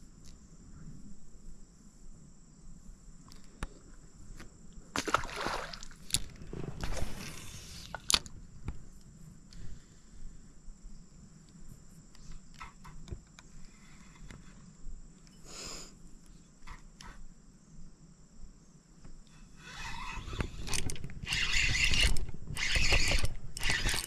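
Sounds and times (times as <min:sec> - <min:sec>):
fishing reel whirring and clicking: 0:19.5 - 0:24.0.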